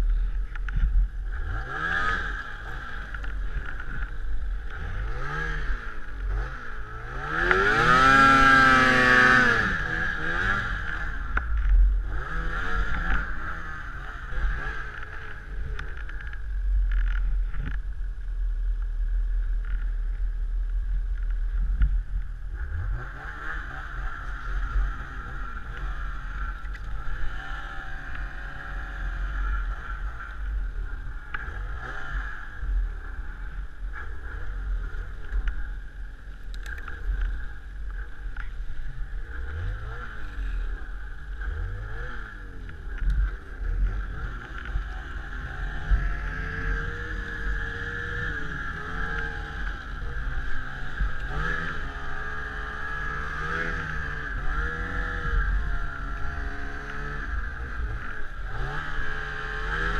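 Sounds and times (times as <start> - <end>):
snowmobile engine revving: 0.0 - 16.2, 22.6 - 35.7, 36.7 - 59.9.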